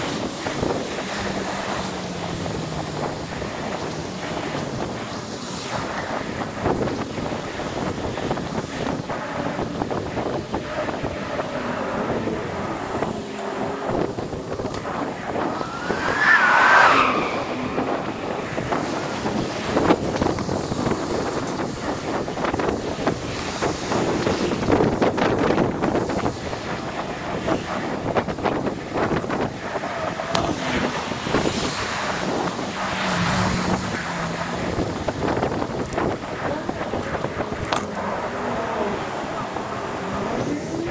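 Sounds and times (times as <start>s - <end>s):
cars passing: 0.0s - 40.9s
street and traffic noise: 0.0s - 40.9s
wind buffeting microphone: 0.0s - 40.9s
tone sliding upward: 14.7s - 19.4s.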